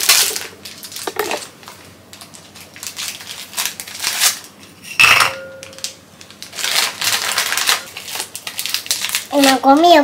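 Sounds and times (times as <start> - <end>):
plastic wrappers crinkling: 0.0 - 4.6, 5.6 - 10.0
clink on glass bowl: 5.0 - 5.8.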